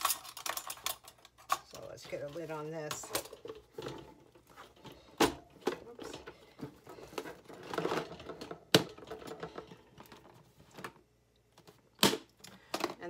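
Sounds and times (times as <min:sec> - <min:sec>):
metal lids clicking and clattering: 0:00.0 - 0:10.9.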